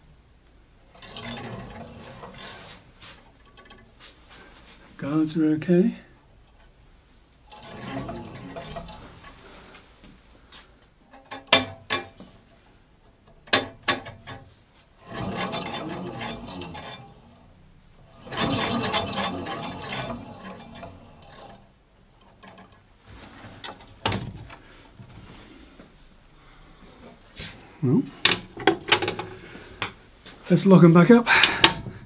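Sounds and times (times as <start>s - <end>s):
rubbing and scraping on bandsaw: 0.8s - 5.2s, 7.4s - 9.9s, 13.1s - 25.9s, 31.3s - 32.0s
sharp clicks and knocks: 10.0s - 12.4s, 13.1s - 17.1s, 22.2s - 25.2s, 28.2s - 30.0s.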